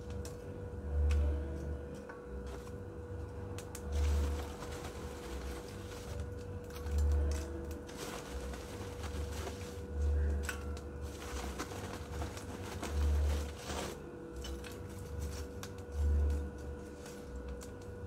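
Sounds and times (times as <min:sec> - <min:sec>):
charcoal clinking and rattling: 0:03.6 - 0:18.0.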